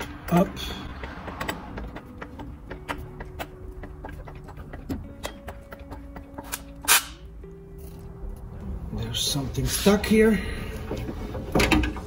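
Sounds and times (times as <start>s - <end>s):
light metallic clicks and knocks: 0.0s - 6.8s.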